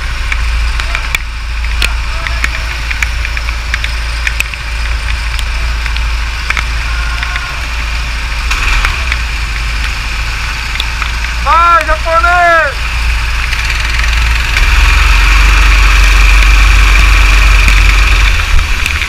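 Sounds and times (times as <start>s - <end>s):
go-kart engines idling: 0.0s - 19.0s
rain ticking on camera: 0.3s - 7.9s.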